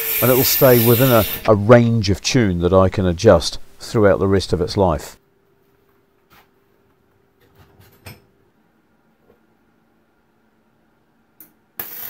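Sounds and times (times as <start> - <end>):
welder arc: 0.0 - 1.6, 11.8 - 12.0
faint steady hum: 0.0 - 12.0.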